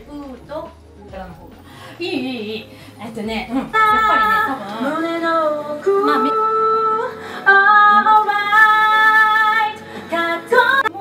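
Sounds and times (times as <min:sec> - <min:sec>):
woman singing into microphone: 0:03.6 - 0:11.0.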